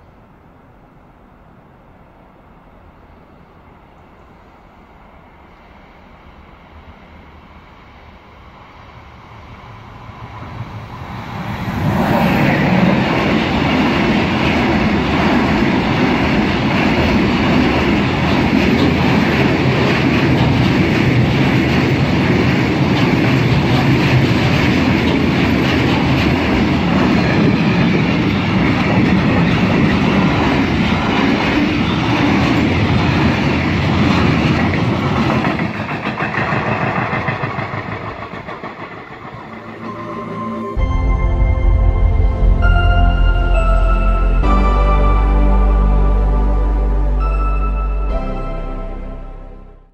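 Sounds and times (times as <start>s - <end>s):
freight train rumbling past: 0.0s - 49.8s
wagon wheels clattering on rail joints: 16.3s - 39.9s.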